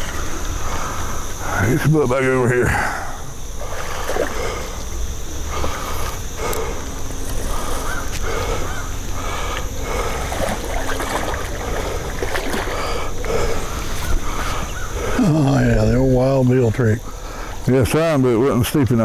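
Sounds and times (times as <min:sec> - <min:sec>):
fish thrashing and splashing: 0:03.6 - 0:04.8, 0:07.3 - 0:14.5.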